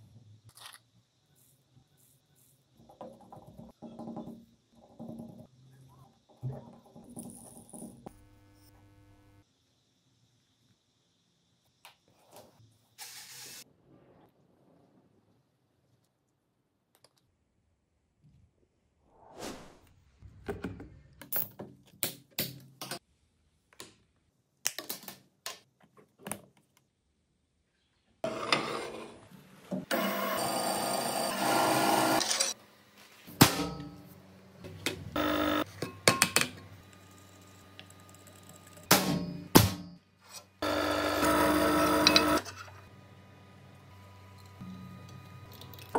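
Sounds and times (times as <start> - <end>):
band saw cutting metal: 29.9 - 32.6.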